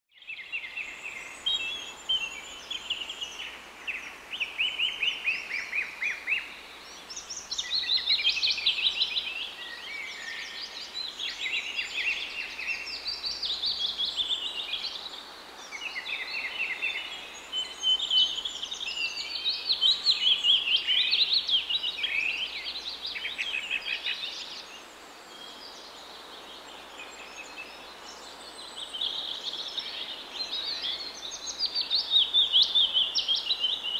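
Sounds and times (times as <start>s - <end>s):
songbirds chirping and trilling: 0.1s - 33.9s.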